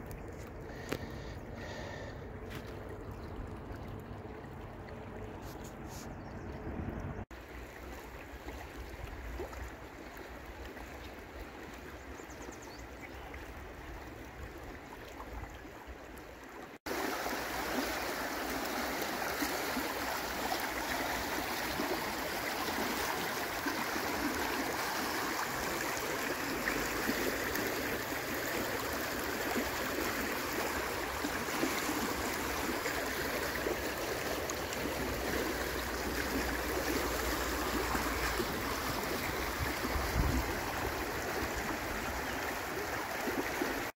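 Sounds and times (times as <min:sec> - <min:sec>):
river rushing over riffle: 0:16.9 - 0:43.5.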